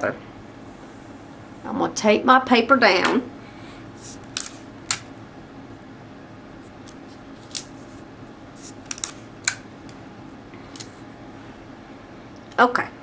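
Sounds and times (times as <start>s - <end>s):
steady low hum: 0.0s - 13.0s
adhesive tape ripping: 6.9s - 8.0s.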